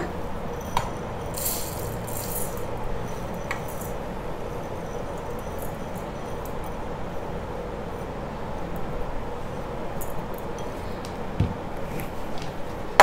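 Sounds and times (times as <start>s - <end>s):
steady background noise: 0.0s - 13.0s
falling grain hiss: 1.3s - 2.8s.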